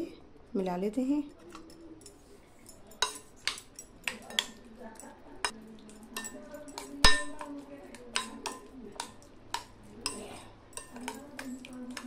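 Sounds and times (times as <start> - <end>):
metal spoon clinking on bowl: 1.5 - 12.0
spoon knocking: 3.0 - 4.7, 5.4 - 12.0.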